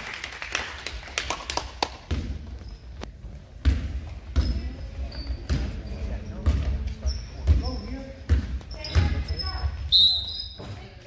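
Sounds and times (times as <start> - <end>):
basketball bouncing on wooden floor: 2.0 - 2.7, 3.6 - 9.9
sneaker squeaks: 2.4 - 11.0.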